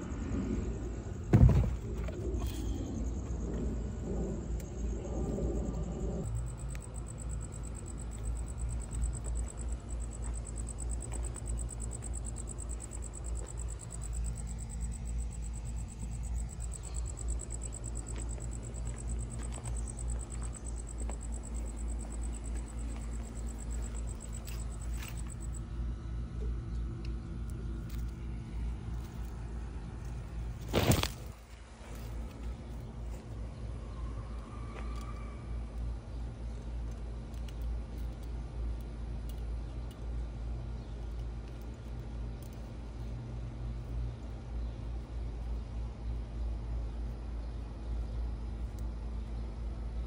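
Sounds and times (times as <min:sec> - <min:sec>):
cricket trilling: 0:00.0 - 0:26.5, 0:27.1 - 0:40.0
low steady rumble: 0:00.0 - 0:50.0.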